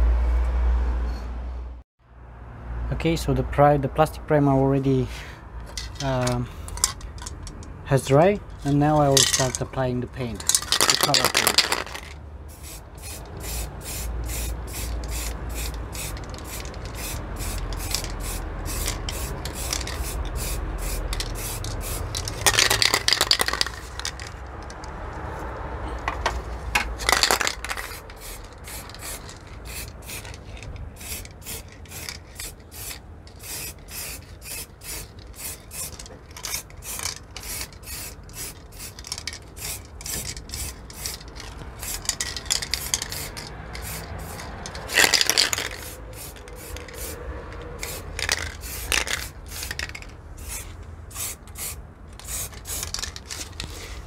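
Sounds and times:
spray paint can hissing bursts: 0:10.5 - 0:24.8, 0:27.0 - 0:54.0.

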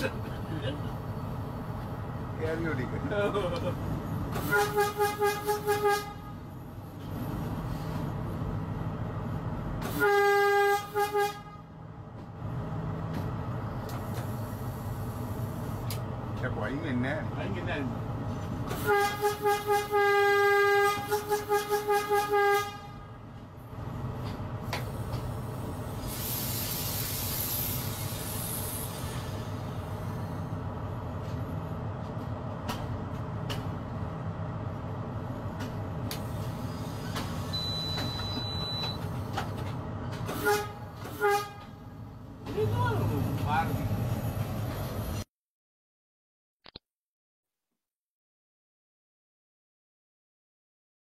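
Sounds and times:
locomotive engine droning: 0:00.0 - 0:45.2
train horn blasts: 0:04.4 - 0:06.5, 0:09.8 - 0:11.7, 0:18.7 - 0:23.2, 0:40.3 - 0:41.8
air brake hiss: 0:24.7 - 0:30.5, 0:36.1 - 0:38.2.

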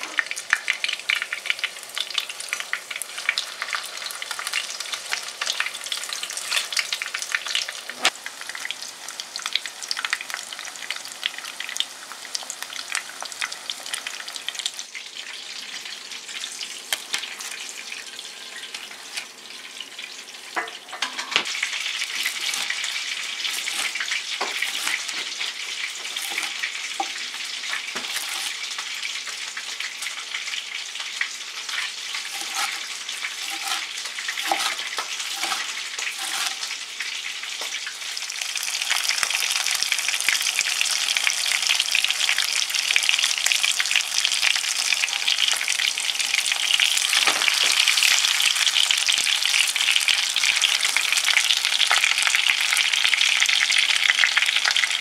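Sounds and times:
patties sizzling in hot oil: 0:00.0 - 0:55.0
knife crunching through crisp crust: 0:22.0 - 0:28.7, 0:31.7 - 0:36.7.

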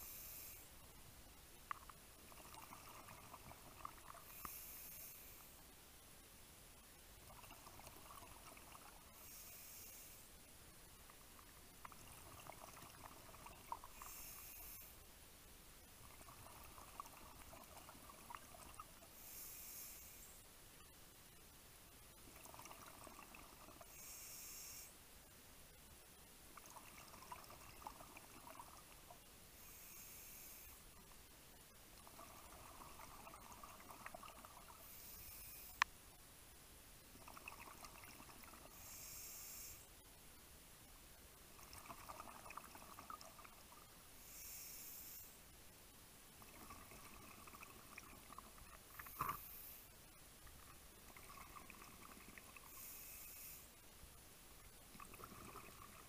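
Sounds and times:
regulator inhale hiss: 0:00.0 - 0:00.8, 0:04.2 - 0:05.6, 0:09.1 - 0:10.4, 0:14.0 - 0:15.1, 0:19.1 - 0:20.5, 0:23.8 - 0:25.0, 0:29.5 - 0:31.0, 0:34.8 - 0:35.9, 0:38.6 - 0:39.9, 0:44.2 - 0:45.5, 0:49.0 - 0:50.0, 0:52.6 - 0:53.8
exhaled bubbles rushing: 0:50.6 - 0:52.6, 0:54.9 - 0:56.0.

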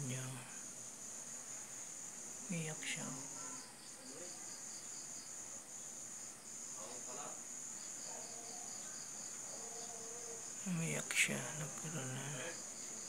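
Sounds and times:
crickets trilling: 0:00.0 - 0:13.0
pulsing cricket chirp: 0:00.0 - 0:13.0
faint distant voice: 0:02.5 - 0:04.7, 0:08.0 - 0:12.7.

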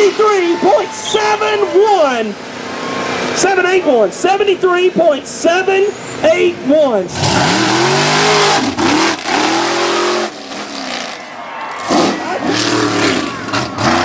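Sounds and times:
loud exhaust rush: 0:00.0 - 0:14.0
truck engine revving hard: 0:07.0 - 0:14.0.

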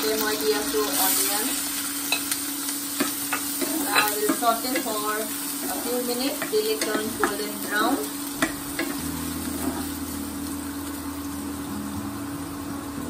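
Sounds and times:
onion sizzling in oil: 0:00.0 - 0:13.0
spatula scraping a pan: 0:02.0 - 0:10.2
low hum: 0:06.9 - 0:13.0.

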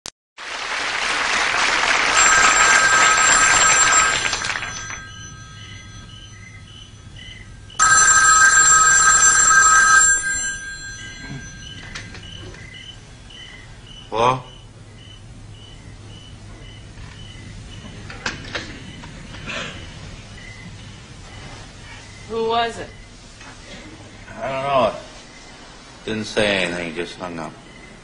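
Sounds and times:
telephone bell ringing: 0:02.1 - 0:07.2, 0:07.8 - 0:12.7.

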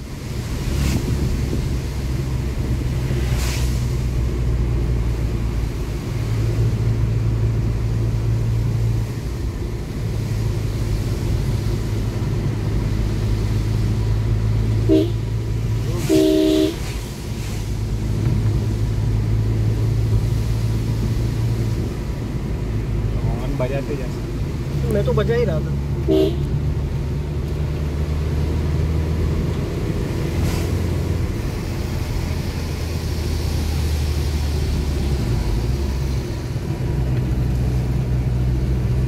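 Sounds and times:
engine and tyres rumbling: 0:00.0 - 0:39.0
car horn toots: 0:14.9 - 0:15.2, 0:16.0 - 0:16.9, 0:26.0 - 0:26.5.

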